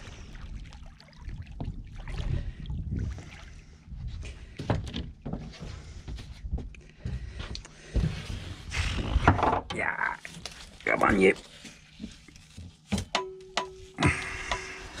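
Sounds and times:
low uneven rumble: 0.0 - 9.4
knocks and thumps on boat deck: 4.0 - 8.2.

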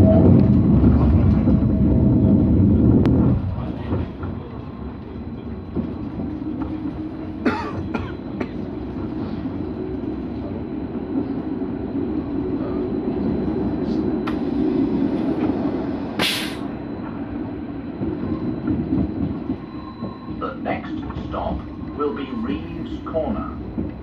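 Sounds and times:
tram wheels rumbling on rail: 0.0 - 24.0
short hiss: 16.2 - 16.6.

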